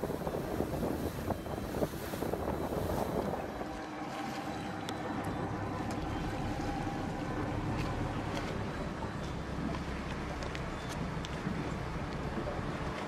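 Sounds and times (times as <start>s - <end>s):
wind buffeting microphone: 0.0s - 4.8s
boat motor noise: 0.0s - 13.0s.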